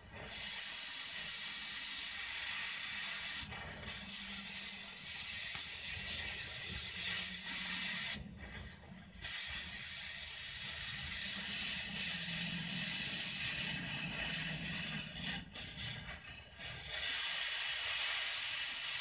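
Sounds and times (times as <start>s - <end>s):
cutting torch hissing: 0.2s - 19.0s.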